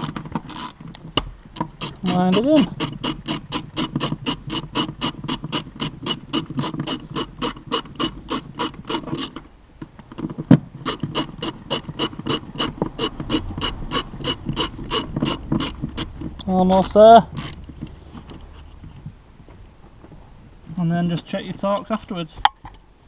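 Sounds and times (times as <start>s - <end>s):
ratchet wrench clicking: 0.0s - 0.8s, 1.6s - 9.4s, 10.8s - 18.4s.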